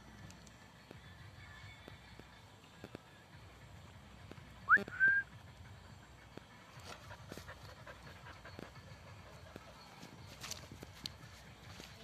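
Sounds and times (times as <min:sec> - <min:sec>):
two-part whistle: 0:04.7 - 0:05.4.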